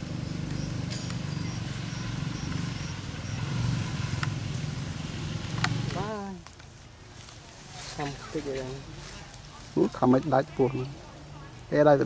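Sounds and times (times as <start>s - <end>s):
low engine drone: 0.0s - 6.1s.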